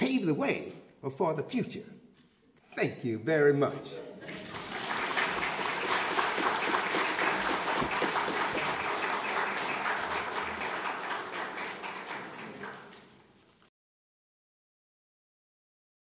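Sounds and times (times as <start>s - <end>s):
audience applauding: 4.2s - 13.3s.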